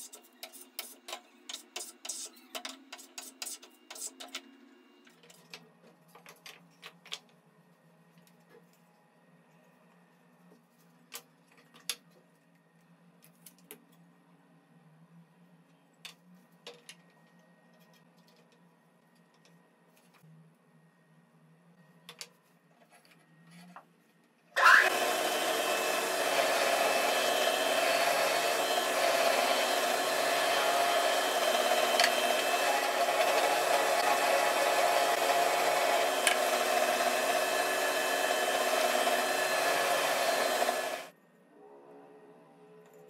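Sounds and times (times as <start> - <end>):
drill boring into wood: 24.6 - 41.1.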